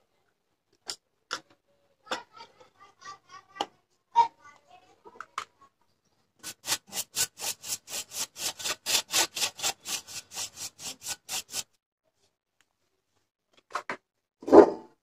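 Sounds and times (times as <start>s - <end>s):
paintbrush scrubbing on metal: 6.4s - 11.7s.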